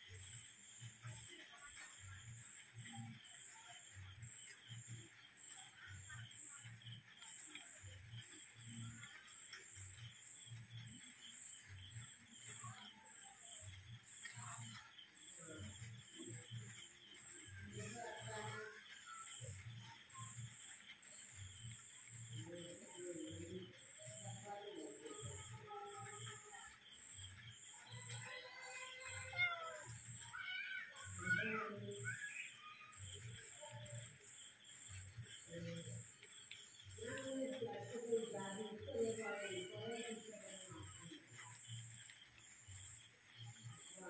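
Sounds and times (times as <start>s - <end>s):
faint cricket chirping: 0.0s - 44.0s.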